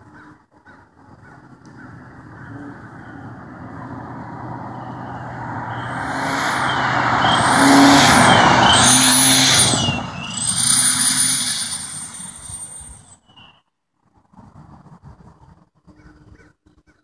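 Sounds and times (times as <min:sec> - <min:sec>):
car engine and exhaust: 0:00.9 - 0:13.3
high exhaust whistle: 0:04.7 - 0:13.2.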